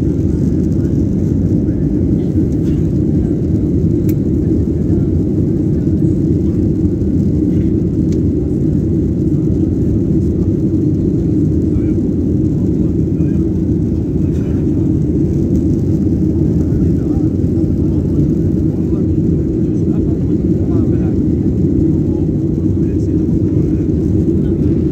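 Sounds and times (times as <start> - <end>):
airliner cabin engine rumble: 0.0 - 24.9.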